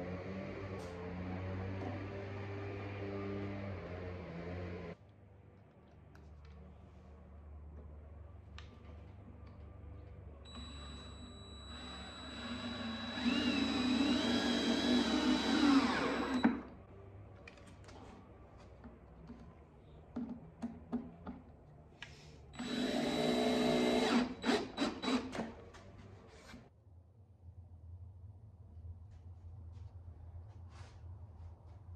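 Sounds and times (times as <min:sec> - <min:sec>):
cordless drill driving screws: 0:11.7 - 0:16.6, 0:22.6 - 0:25.5.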